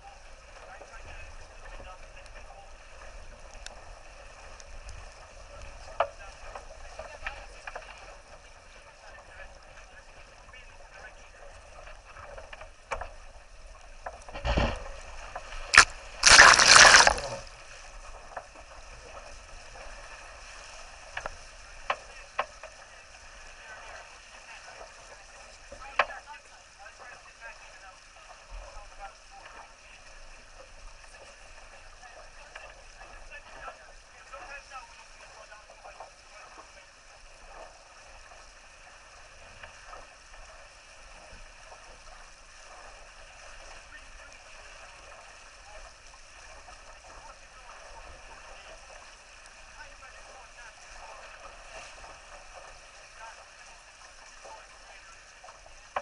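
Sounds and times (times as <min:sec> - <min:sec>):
water rushing along hull: 0:00.0 - 0:56.0
water splash: 0:15.6 - 0:17.6.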